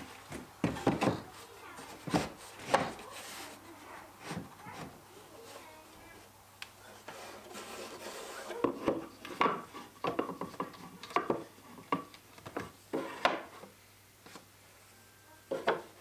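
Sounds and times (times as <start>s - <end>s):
wooden pieces knocking on shelf: 0.3s - 1.2s, 8.6s - 13.5s.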